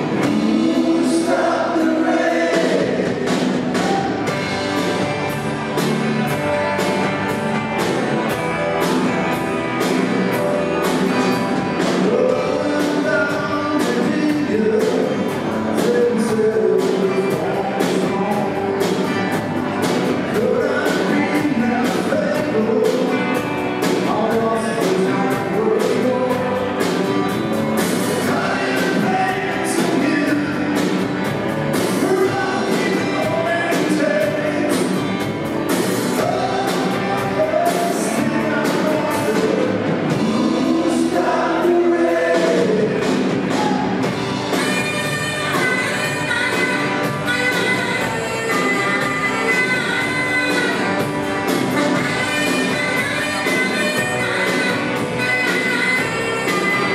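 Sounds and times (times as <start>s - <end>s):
man singing lead vocal: 0.0s - 4.0s, 11.8s - 19.1s, 20.2s - 27.0s, 28.1s - 31.1s, 31.8s - 35.2s, 36.1s - 43.9s
drum kit beat: 0.0s - 56.9s
electric guitar: 0.0s - 56.9s.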